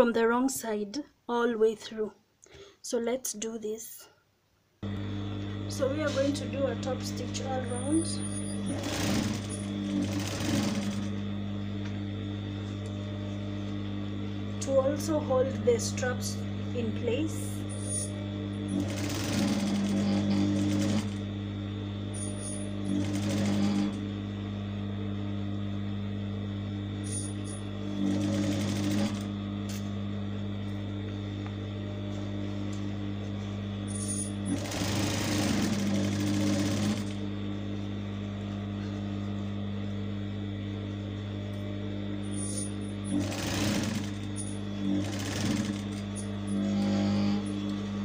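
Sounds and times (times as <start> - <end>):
low machine hum: 4.8 - 48.0
sewing machine needle running: 5.7 - 11.4, 14.5 - 24.2, 27.0 - 29.8, 33.8 - 37.3, 42.2 - 48.0.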